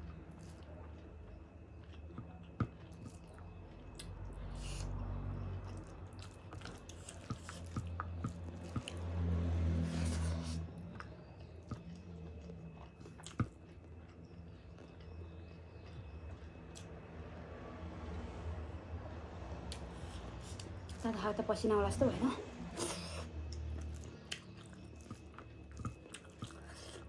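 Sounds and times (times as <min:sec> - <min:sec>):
wet squishing of food by hand: 0:00.0 - 0:16.7, 0:23.4 - 0:27.0
chewing and mouth sounds: 0:00.0 - 0:17.2, 0:19.6 - 0:21.3, 0:22.7 - 0:27.0.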